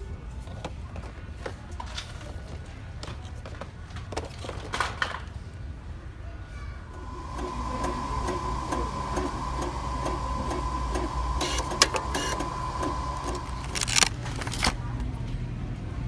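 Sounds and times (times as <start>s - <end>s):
small machine whining and clicking: 6.9s - 14.8s
sharp crinkling or clattering: 13.4s - 15.0s.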